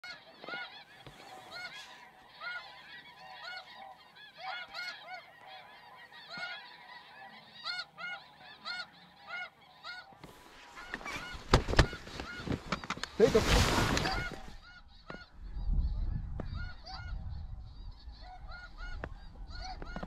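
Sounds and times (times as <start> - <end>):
geese honking: 0.0 - 20.0.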